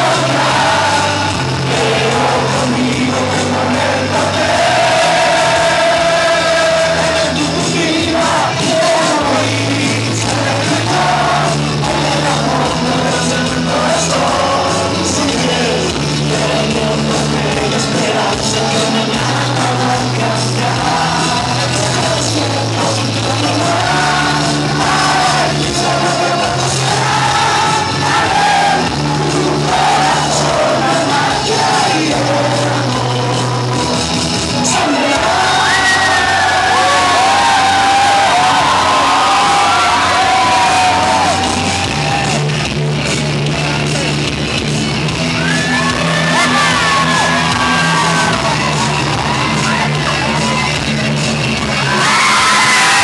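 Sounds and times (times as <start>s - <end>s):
person singing into microphone: 0.0s - 41.5s
loud amplified backing music: 0.0s - 53.0s.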